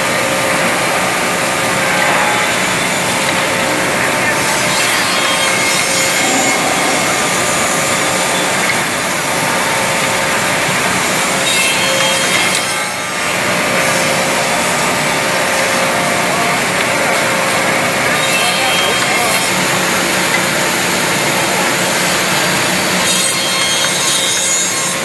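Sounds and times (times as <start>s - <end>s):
woodworking machine cutting wood: 0.0s - 25.0s.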